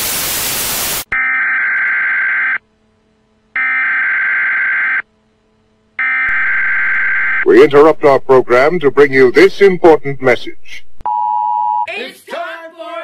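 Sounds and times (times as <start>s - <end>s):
tv static hiss: 0.0s - 1.1s, 6.3s - 11.0s
emergency alert beeps: 11.0s - 11.9s.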